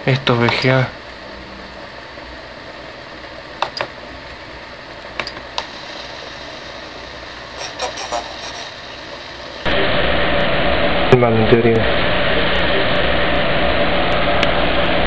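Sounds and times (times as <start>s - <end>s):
steady low hiss: 0.0s - 9.7s.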